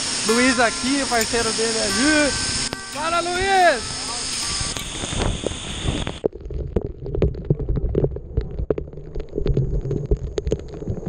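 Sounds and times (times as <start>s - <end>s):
waterfall rushing: 0.0s - 6.2s.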